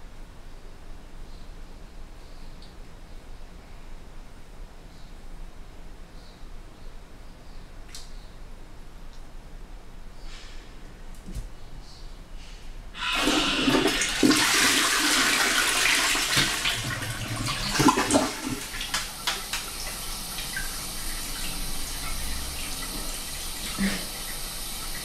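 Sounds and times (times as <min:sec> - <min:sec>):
cistern refilling hiss: 0:12.4 - 0:25.0
toilet flushing: 0:13.0 - 0:25.0.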